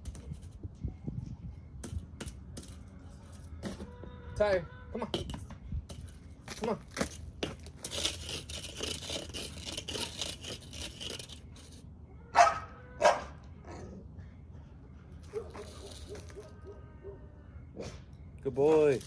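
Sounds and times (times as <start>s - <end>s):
dog barking: 12.3s - 13.9s, 15.3s - 18.0s.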